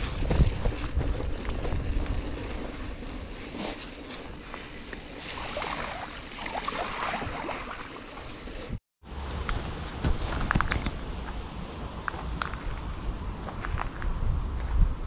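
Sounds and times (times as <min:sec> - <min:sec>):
wind rushing over microphone: 0:00.0 - 0:03.1, 0:09.6 - 0:15.0
bike tyres rolling on gravel: 0:00.0 - 0:08.8.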